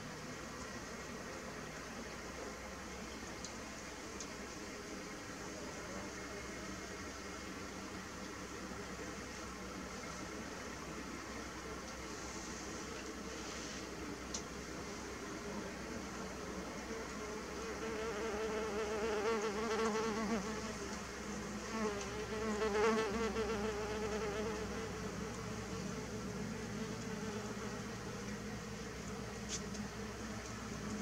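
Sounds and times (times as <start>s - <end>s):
bees buzzing in flight: 17.3s - 28.7s.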